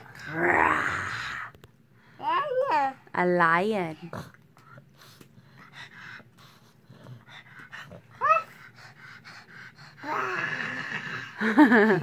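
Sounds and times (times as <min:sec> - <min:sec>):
toddler breathy vocal sound: 0:07.6 - 0:11.3.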